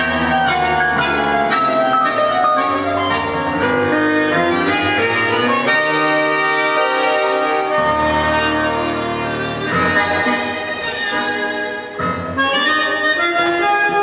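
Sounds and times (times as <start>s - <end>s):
bandoneon: 0.0s - 14.0s
piano: 0.0s - 14.0s
violin: 3.4s - 14.0s.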